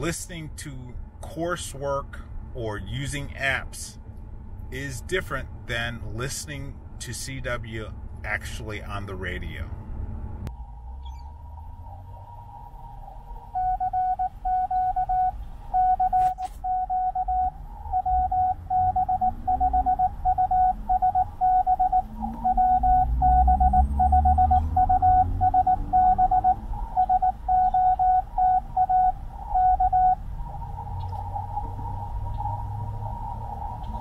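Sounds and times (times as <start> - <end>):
low rumble: 2.0 - 16.0, 16.6 - 34.0
morse code beeps: 13.6 - 30.2.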